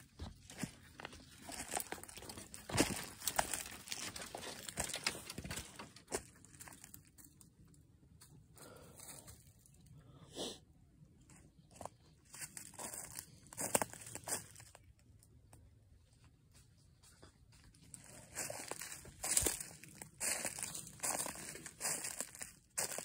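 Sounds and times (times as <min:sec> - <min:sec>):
crunching and rustling in dry leaves: 0:00.4 - 0:06.9, 0:11.8 - 0:14.9, 0:17.9 - 0:23.0.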